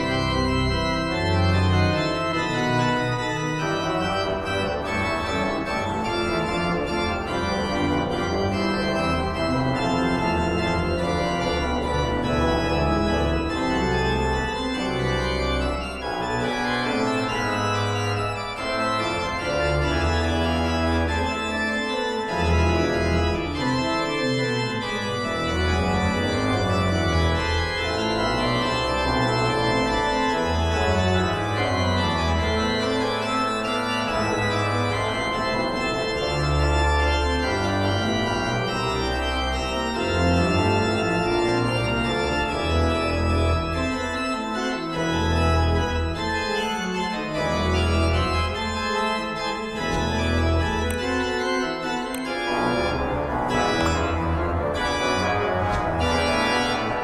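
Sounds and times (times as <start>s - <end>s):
organ music: 0.0s - 57.0s.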